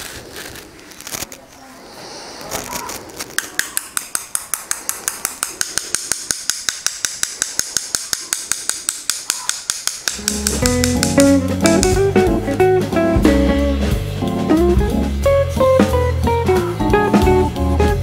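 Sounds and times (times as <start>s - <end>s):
paintbrush tapping: 3.4s - 12.0s.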